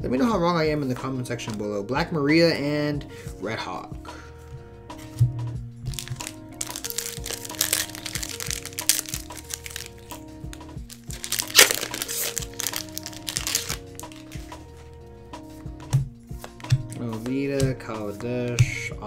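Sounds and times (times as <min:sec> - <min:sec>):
background music: 0:00.0 - 0:19.0
foil wrapper crinkling: 0:05.9 - 0:10.2, 0:10.8 - 0:14.6.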